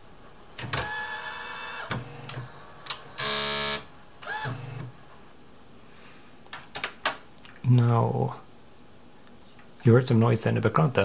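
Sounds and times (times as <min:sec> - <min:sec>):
loud steady buzz: 0:00.7 - 0:05.0
short motor whirs: 0:03.2 - 0:04.9.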